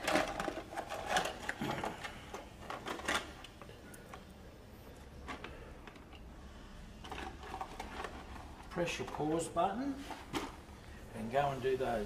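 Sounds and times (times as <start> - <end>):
screws rattling in plastic tub: 0.0 - 3.4.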